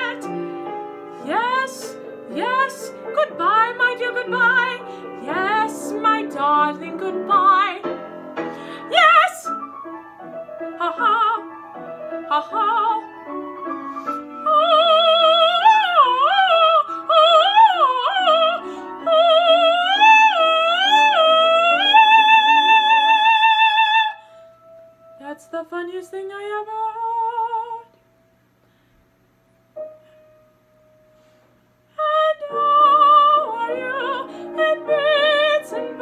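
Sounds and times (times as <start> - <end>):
soprano singing opera: 0.0 - 7.9, 8.7 - 9.6, 10.6 - 11.5, 12.2 - 13.3, 14.3 - 24.2, 25.2 - 27.9, 32.0 - 36.0
piano accompaniment: 0.0 - 28.5, 29.4 - 36.0.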